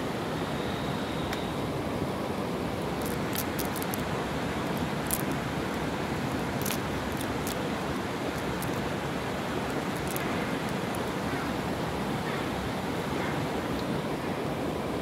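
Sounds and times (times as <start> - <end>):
steady rushing noise: 0.0 - 15.0
cast net clicks and rustles: 2.9 - 9.0, 9.6 - 11.2.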